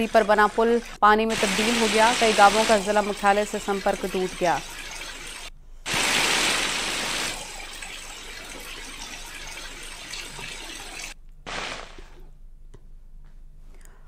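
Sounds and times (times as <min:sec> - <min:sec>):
floodwater rushing: 0:01.3 - 0:11.9.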